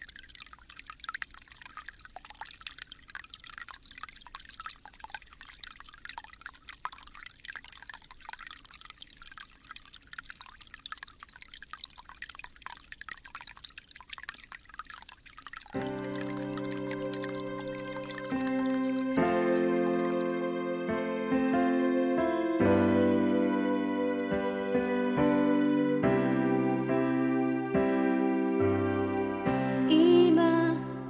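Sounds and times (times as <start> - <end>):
stream babbling over its bed: 0.0 - 20.7.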